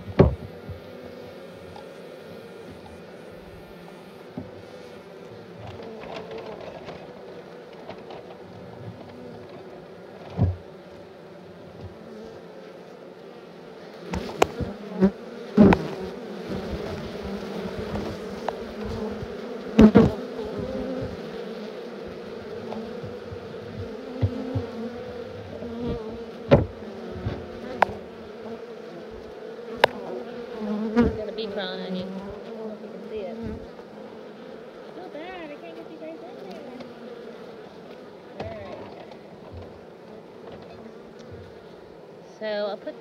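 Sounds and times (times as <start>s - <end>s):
sharp knocks: 0.0s - 0.8s, 26.5s - 28.0s
bees buzzing in a swarm: 0.0s - 43.0s.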